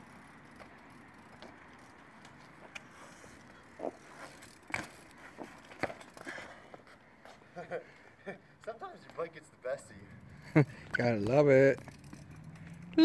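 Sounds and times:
faint bike tyre noise: 0.0s - 13.0s
bike knocks and clicks: 3.7s - 6.4s, 11.2s - 13.0s.

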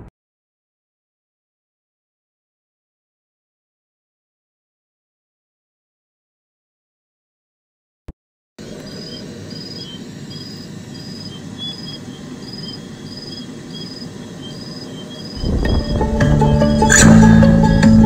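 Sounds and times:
insect chirping: 8.6s - 18.0s.

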